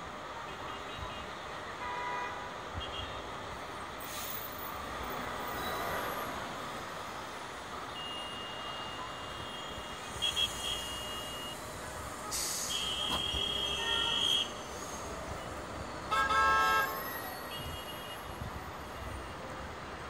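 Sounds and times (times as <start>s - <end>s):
city traffic: 0.0s - 20.0s
brief hiss: 4.0s - 4.6s, 10.0s - 13.7s.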